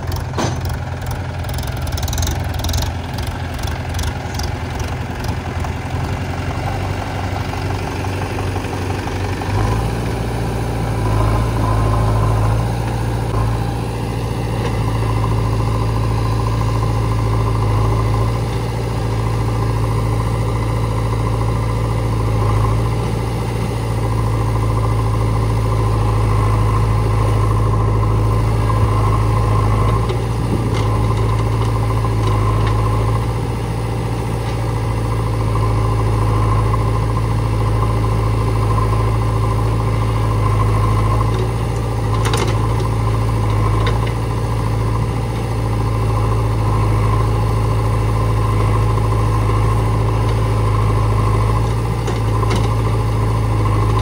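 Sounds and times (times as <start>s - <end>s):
diesel engines running: 0.0s - 54.0s.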